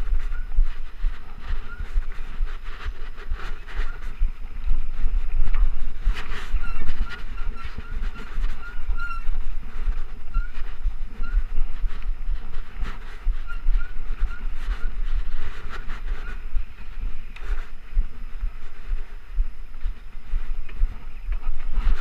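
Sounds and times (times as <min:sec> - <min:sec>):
bike rattling over bumps: 0:00.0 - 0:18.3
wind buffeting microphone: 0:00.0 - 0:22.0
short high squeaks: 0:06.3 - 0:11.5.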